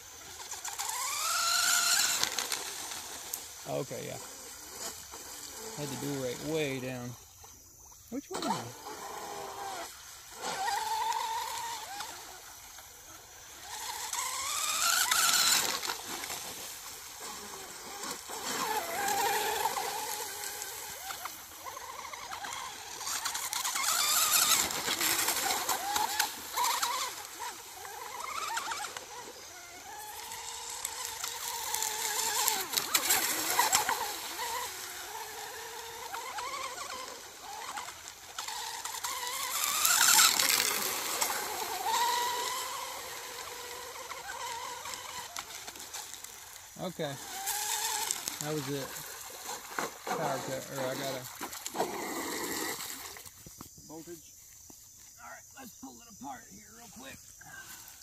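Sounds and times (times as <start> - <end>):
rc boat motor whine: 0.0 - 58.0.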